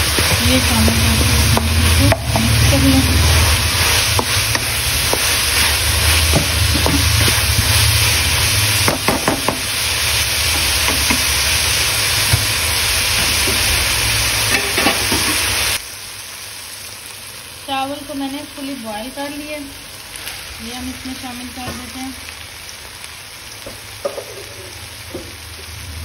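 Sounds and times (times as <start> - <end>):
food sizzling in a hot pan: 0.0 - 26.0
metal spatula scraping a pan: 14.4 - 15.6.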